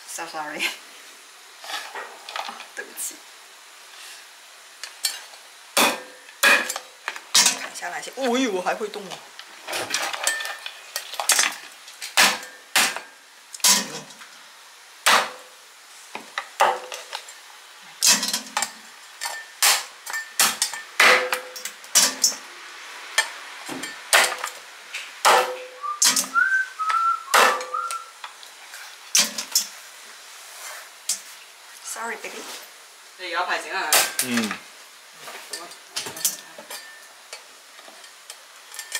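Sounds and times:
person whistling: 25.8 - 28.1.

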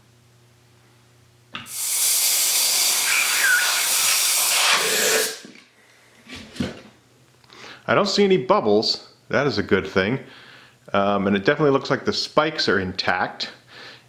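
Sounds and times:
compressed air hissing: 1.6 - 5.5.

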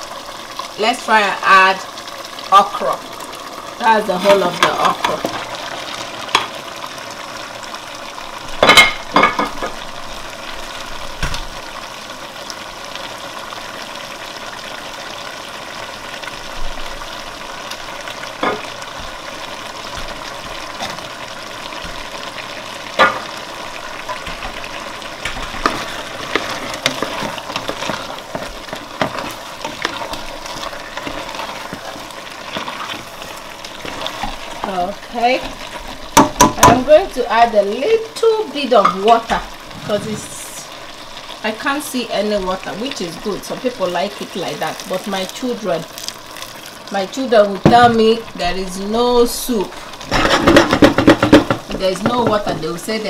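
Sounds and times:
soup sizzling in a pot: 0.0 - 53.0
knocks and scrapes against pot: 50.1 - 52.4.

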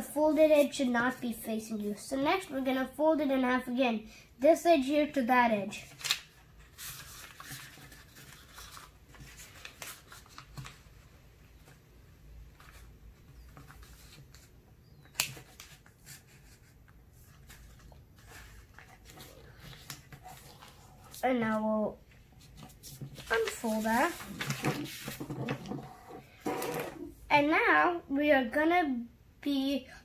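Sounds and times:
paper folding and rustling: 5.7 - 11.8, 12.5 - 27.1
paper sliding on table: 23.2 - 27.1.

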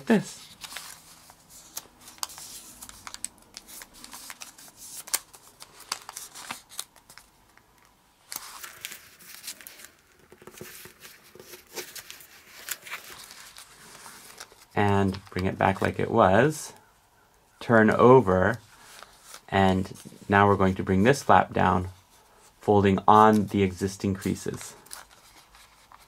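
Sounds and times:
paper rustling and crackling: 0.0 - 16.1, 18.5 - 20.4, 23.2 - 26.0.

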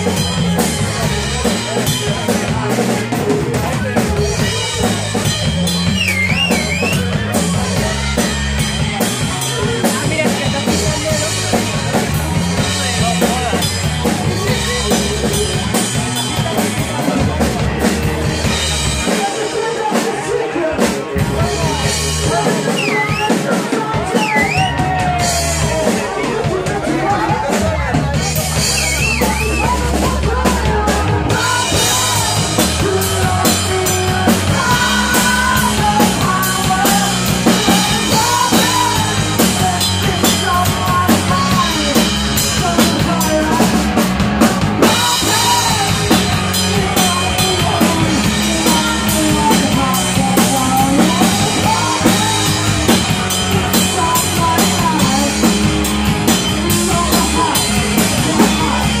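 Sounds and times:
drum kit and cymbals: 0.0 - 59.0
live rock band playing: 0.0 - 59.0.

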